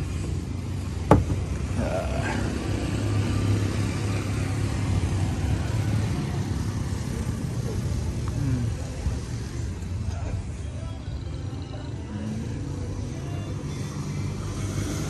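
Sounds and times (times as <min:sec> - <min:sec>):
cars passing: 0:00.0 - 0:15.0
motorcycles passing: 0:00.0 - 0:15.0
road traffic rumble: 0:00.0 - 0:15.0
sharp knock: 0:01.1 - 0:01.4.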